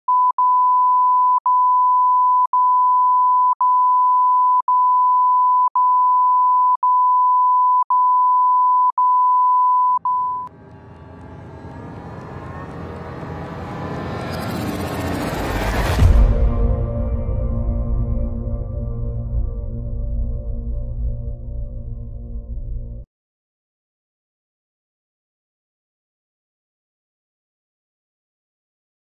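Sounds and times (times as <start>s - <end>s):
high electronic beep tone: 0.1s - 10.5s
music: 10.4s - 23.1s
low rising swell: 10.5s - 23.0s.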